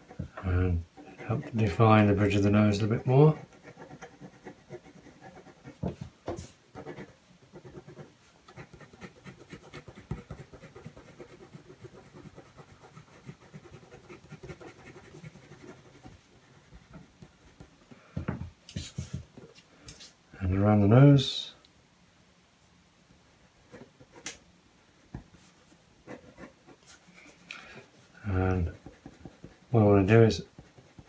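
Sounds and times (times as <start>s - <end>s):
pencil scratching on card: 0.9s - 6.0s, 6.8s - 17.7s, 26.1s - 27.0s, 28.5s - 29.8s, 30.4s - 31.0s.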